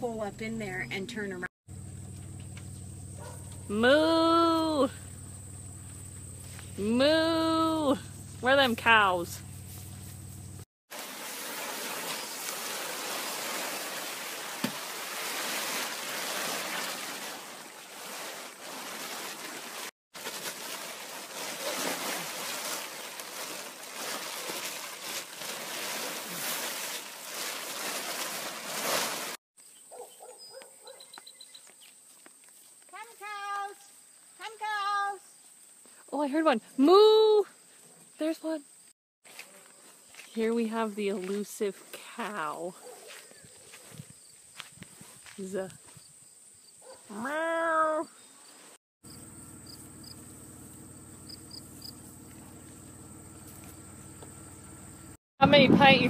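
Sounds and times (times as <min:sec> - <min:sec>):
faint insect chirping: 0:01.7 - 0:03.7, 0:04.5 - 0:06.8, 0:29.6 - 0:40.4, 0:43.1 - 0:55.2
steady high insect buzz: 0:04.9 - 0:06.8, 0:48.0 - 0:55.2
plastic tarp rustling and crinkling: 0:10.9 - 0:29.4
corn husks sliding onto ground: 0:11.0 - 0:29.4.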